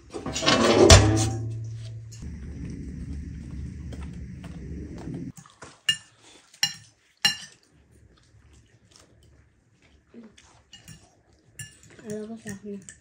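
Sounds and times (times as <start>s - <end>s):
eating sounds: 2.2s - 13.0s
forks clinking on plates: 5.9s - 7.6s, 10.7s - 13.0s.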